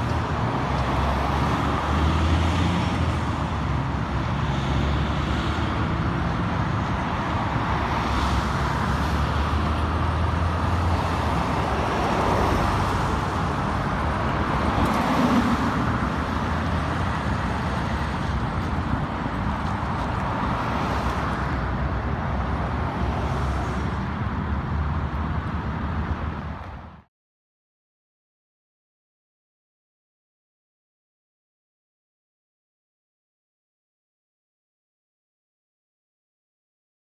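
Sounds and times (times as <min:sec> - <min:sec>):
passing cars: 0:00.0 - 0:27.1
truck diesel engine: 0:08.4 - 0:26.5.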